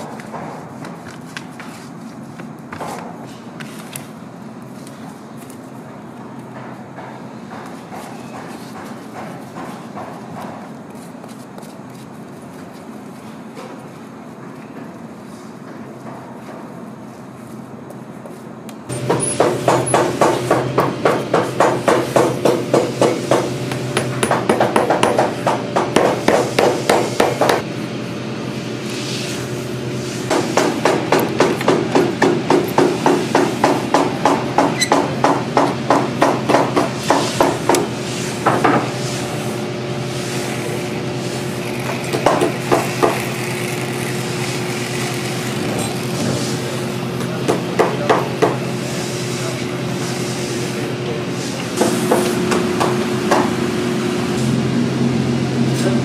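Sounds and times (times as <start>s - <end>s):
motor hum: 39.6s - 47.2s.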